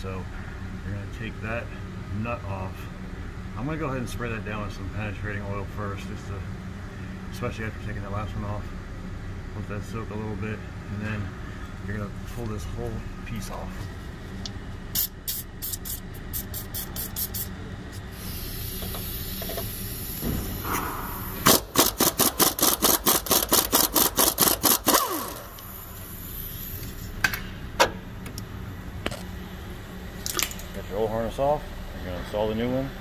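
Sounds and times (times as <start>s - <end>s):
aerosol spray hissing: 15.0s - 17.5s, 18.1s - 20.3s
wrench clicking: 21.4s - 25.6s.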